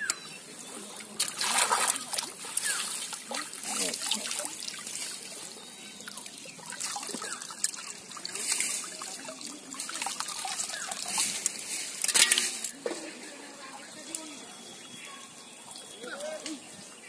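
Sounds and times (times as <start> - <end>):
water sloshing and dripping: 0.6 - 12.8
water splash: 1.0 - 5.4.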